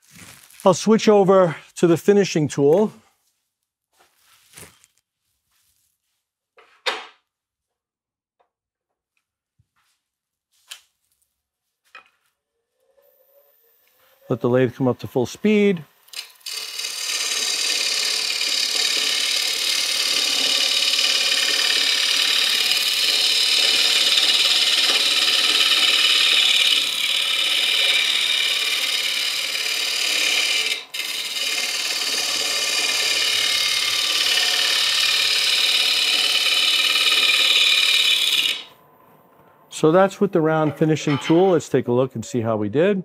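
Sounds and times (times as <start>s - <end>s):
lathe tool scraping wood: 16.1s - 38.7s.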